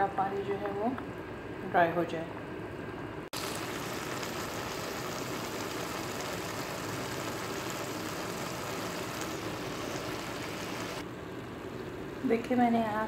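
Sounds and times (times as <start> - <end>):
water boiling in a pan: 3.3 - 13.0.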